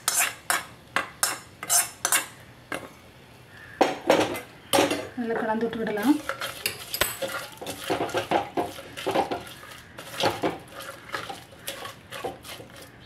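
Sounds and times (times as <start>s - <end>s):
wooden spoon scraping clay pot: 0.0s - 0.6s, 1.2s - 2.3s, 5.4s - 13.0s.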